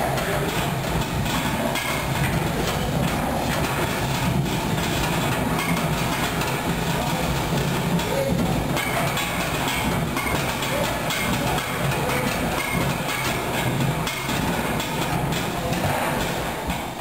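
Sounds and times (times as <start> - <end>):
wooden reel rumbling rattle: 0.0 - 17.0.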